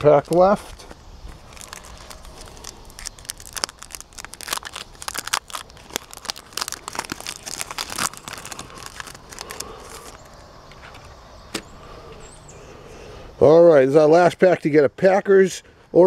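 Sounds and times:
foil wrapper crinkling and tearing: 0.0 - 10.4.

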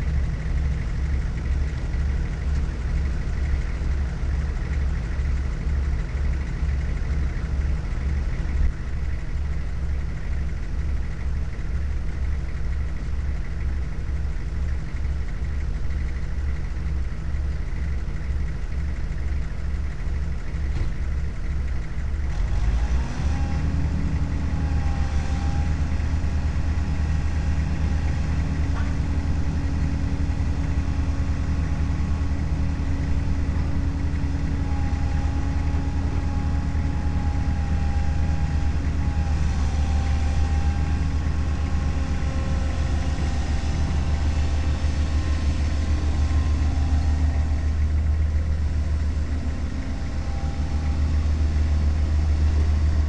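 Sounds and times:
diesel engine idling: 0.0 - 53.0.

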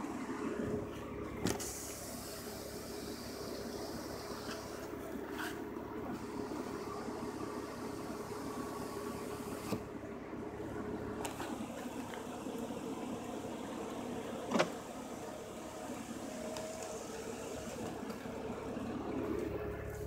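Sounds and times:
power window motor humming: 1.4 - 10.0, 10.8 - 20.0.

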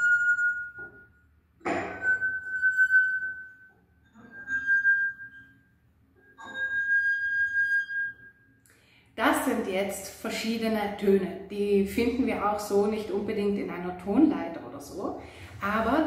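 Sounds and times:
singing wine glass tones: 0.0 - 8.7
finger rubbing glass rim: 6.2 - 8.4.

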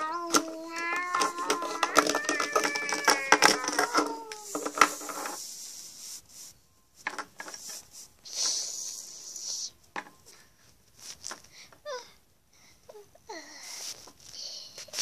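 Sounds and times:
plastic toy figurines knocking: 0.2 - 5.4
short rubbing hiss: 4.3 - 6.6, 7.5 - 9.8.

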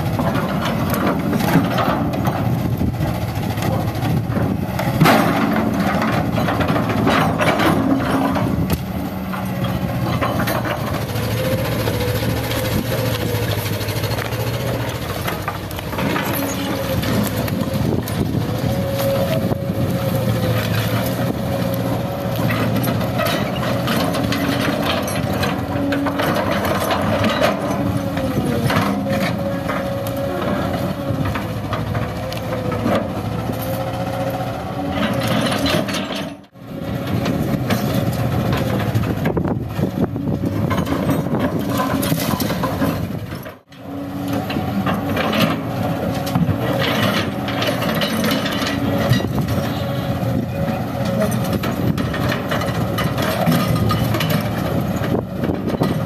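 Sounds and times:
excavator engine running: 0.0 - 56.0.

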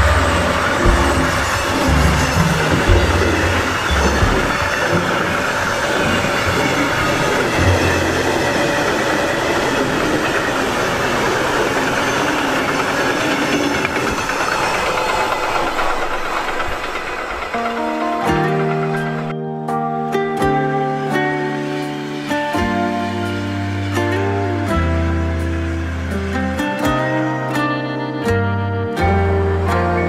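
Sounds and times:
freight train wheels rushing on rails: 0.0 - 19.4.

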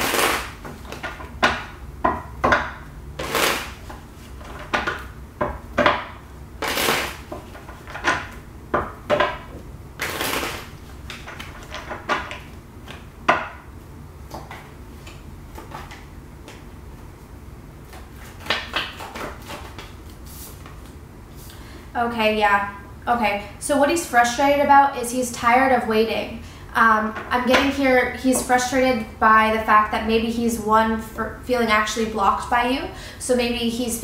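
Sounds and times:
cards being shuffled by hand: 0.0 - 1.3, 3.2 - 5.0, 6.6 - 8.3, 10.0 - 13.1, 17.8 - 21.0.

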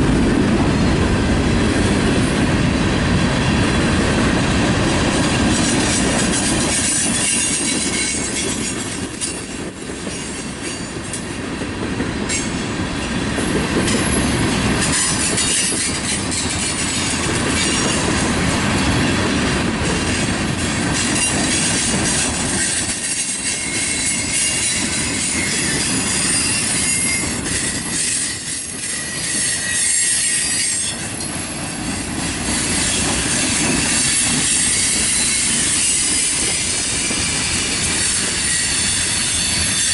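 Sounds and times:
train wheels rumbling and clacking: 0.0 - 39.9
high wheel squeal: 5.6 - 9.3, 21.0 - 39.9.

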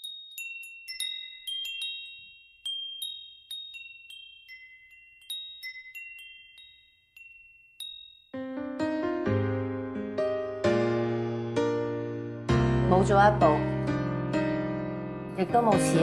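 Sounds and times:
high metallic chimes ringing: 0.0 - 8.6.

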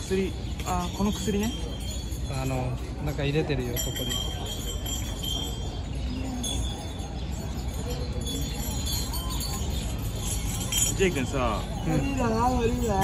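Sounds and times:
light metallic chime ringing: 0.0 - 13.0.

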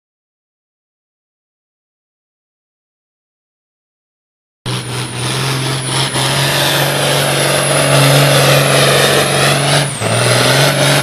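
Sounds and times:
tractor engine running at high revs: 4.7 - 11.0.

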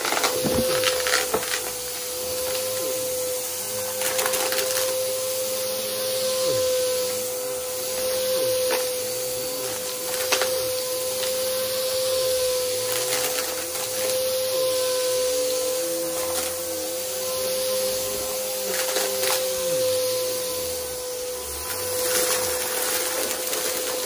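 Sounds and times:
vacuum cleaner motor whine: 0.0 - 24.0
debris crunching in vacuum: 21.6 - 24.0.

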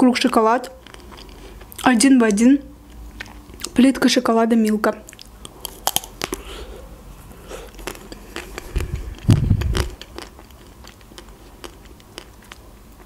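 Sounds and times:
close-up chewing: 0.2 - 1.9, 2.9 - 3.8, 5.0 - 13.0
wet mouth clicks: 5.1 - 6.5, 7.6 - 12.6
chocolate shell cracking: 5.5 - 6.4.

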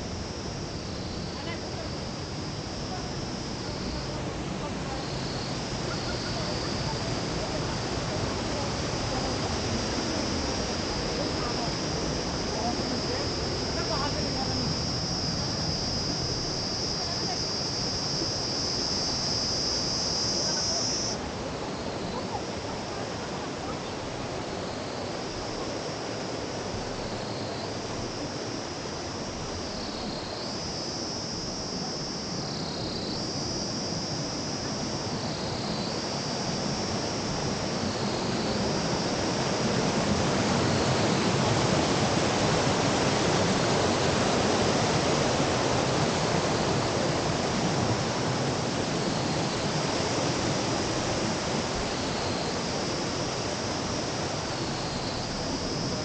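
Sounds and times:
high insect buzz: 0.0 - 23.2, 24.0 - 56.0
river rushing: 33.4 - 56.0.

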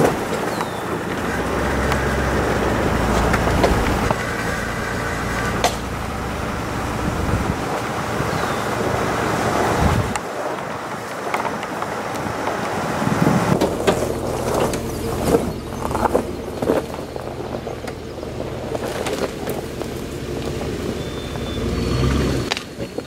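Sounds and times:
wind rushing over microphone: 0.0 - 21.0
truck engine hum: 0.0 - 23.0
tyre noise on gravel: 0.0 - 23.0
stones crunching: 13.6 - 21.0.

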